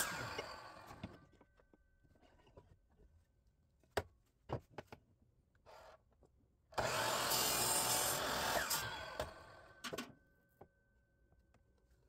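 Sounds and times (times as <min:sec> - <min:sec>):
miter saw cutting wood: 0:00.0 - 0:01.1, 0:06.8 - 0:09.8.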